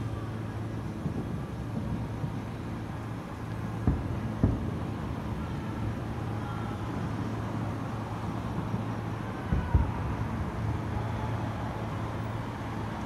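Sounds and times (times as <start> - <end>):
distant fireworks booms: 0.9 - 6.3, 8.3 - 11.4.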